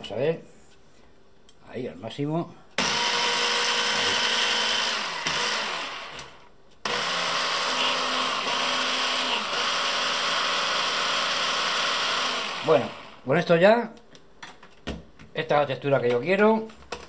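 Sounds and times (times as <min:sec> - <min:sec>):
hand blender chopping: 0:02.8 - 0:13.2.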